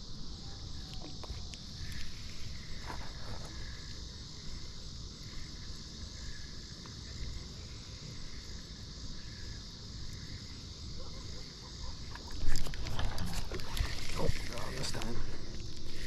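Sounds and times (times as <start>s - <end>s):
insects droning: 0.0s - 16.0s
faint ticks: 0.8s - 4.0s, 5.6s - 7.2s.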